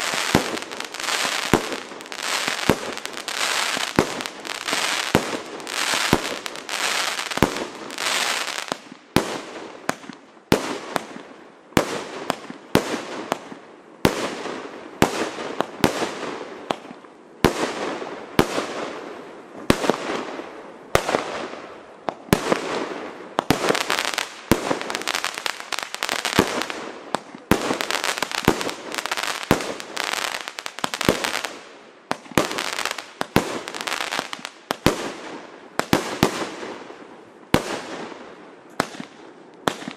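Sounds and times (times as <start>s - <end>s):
fireworks firing: 0.0s - 39.9s.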